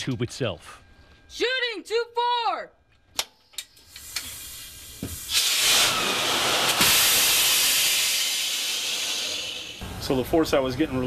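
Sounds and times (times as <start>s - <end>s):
high-pressure air rushing: 3.6s - 9.9s.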